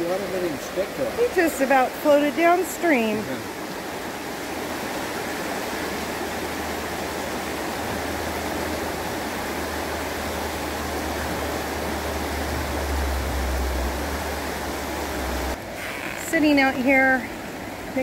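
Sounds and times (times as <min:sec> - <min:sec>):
river rushing over rocks: 0:00.0 - 0:16.0
low rumble: 0:07.8 - 0:15.6.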